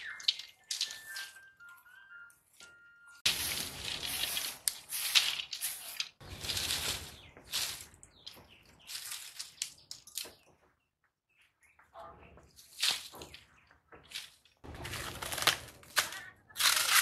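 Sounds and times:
dry sticks rustling and clattering: 3.2 - 10.8, 12.2 - 17.0.

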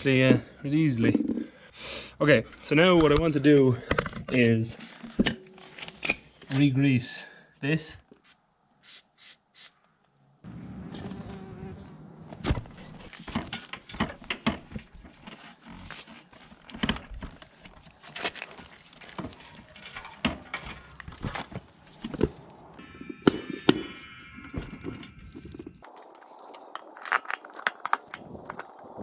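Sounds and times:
aerosol spray hissing: 8.2 - 9.7.

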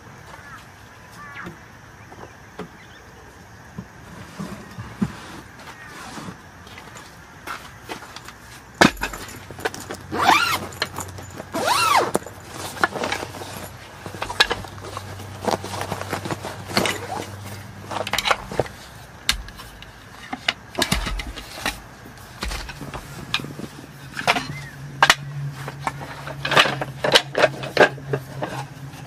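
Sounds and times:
wooden slats clattering: 7.5 - 29.0
short squeaks: 10.1 - 11.0, 11.6 - 12.3.

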